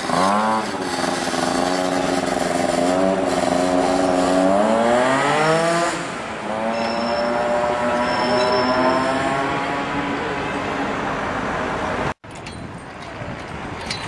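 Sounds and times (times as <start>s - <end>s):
tram wheels squealing: 6.6s - 9.6s.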